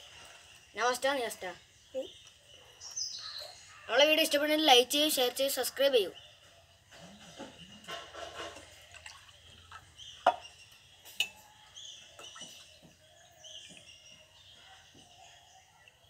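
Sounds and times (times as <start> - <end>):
water trickling into glass: 8.6 - 14.5.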